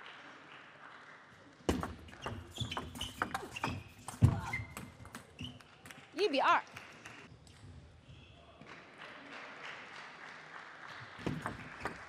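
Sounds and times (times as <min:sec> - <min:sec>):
shoes squeaking on floor: 0:02.1 - 0:05.7.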